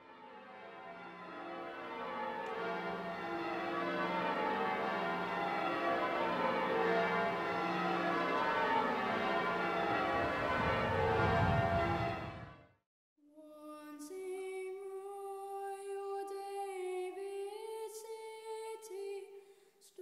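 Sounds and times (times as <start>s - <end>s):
church bells ringing: 0.0s - 12.6s.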